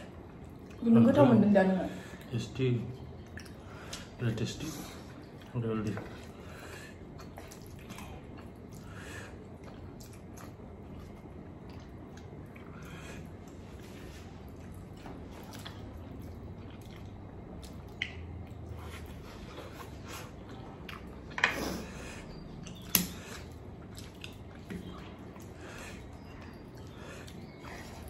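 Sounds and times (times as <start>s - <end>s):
person chewing noodles: 0.0s - 0.8s, 3.0s - 4.2s, 4.8s - 28.0s.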